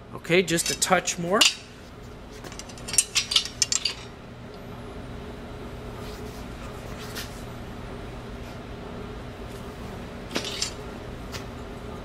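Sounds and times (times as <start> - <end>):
steady low hum: 0.0 - 12.0
metal bar clinking: 2.5 - 4.1.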